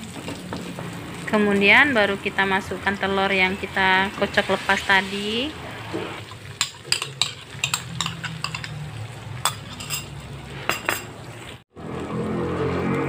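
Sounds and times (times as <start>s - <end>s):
egg sizzling in a wok: 4.3s - 10.4s
spatula scraping a pan: 5.9s - 8.8s.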